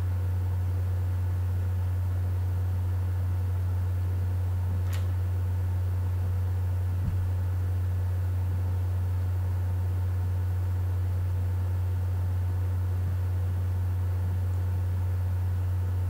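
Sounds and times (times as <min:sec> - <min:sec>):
low electrical hum: 0:00.0 - 0:16.0
soft low thump: 0:07.0 - 0:07.5.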